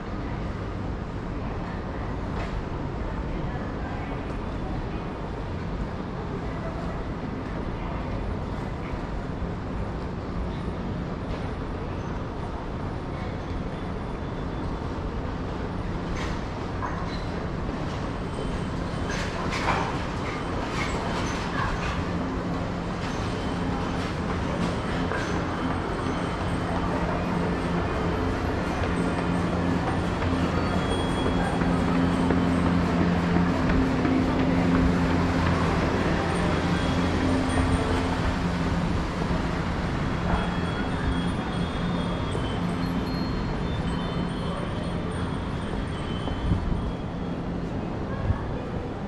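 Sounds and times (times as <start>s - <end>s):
train rumbling: 0.0s - 49.0s
droning tone: 22.0s - 47.0s.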